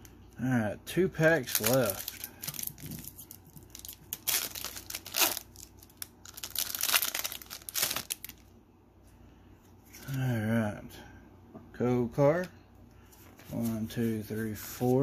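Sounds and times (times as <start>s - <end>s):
foil wrapper tearing and crinkling: 1.4s - 8.4s.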